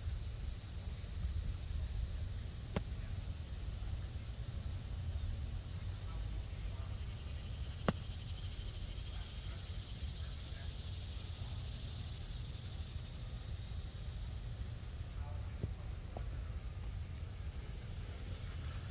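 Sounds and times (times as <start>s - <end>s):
wind rumble on microphone: 0.0s - 6.1s
high hiss: 0.0s - 18.9s.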